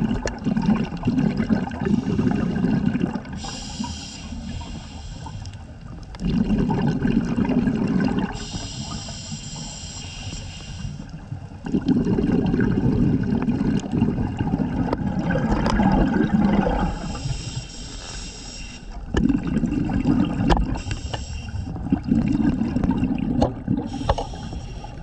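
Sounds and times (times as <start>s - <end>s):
exhaled bubbles underwater: 0.0s - 25.0s
regulator inhalation hiss: 3.4s - 5.6s, 8.4s - 11.1s, 16.9s - 19.0s, 20.8s - 21.7s, 23.9s - 25.0s.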